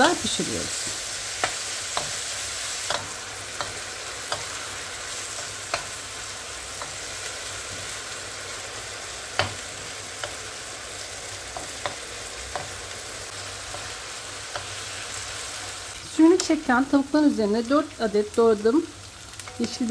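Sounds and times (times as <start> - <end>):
chicken sizzling in oil: 0.0 - 19.9
wooden spoon knocking on pan: 9.4 - 9.6.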